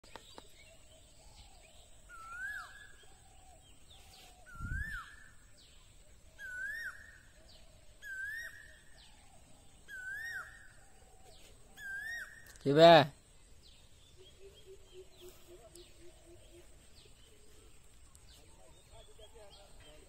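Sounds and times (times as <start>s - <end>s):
fainter lower bird call: 0.0s - 20.0s
bird whistled call: 1.2s - 5.4s, 6.4s - 12.6s.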